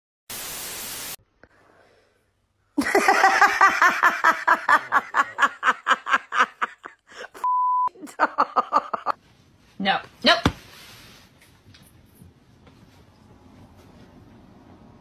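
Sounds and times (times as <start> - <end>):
static hiss: 0.3 - 1.2
rhythmic laughter: 2.8 - 7.4
short steady beep: 7.4 - 7.9.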